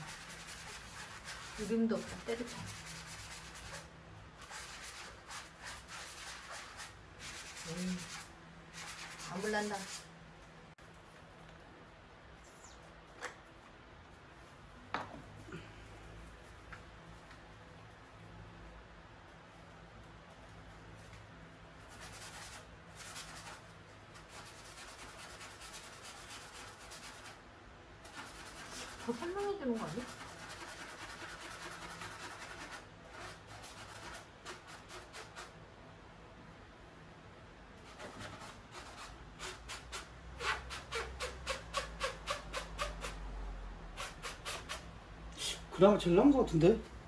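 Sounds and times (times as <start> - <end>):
pad scrubbing wallpaper: 0.0 - 10.1, 28.0 - 35.5.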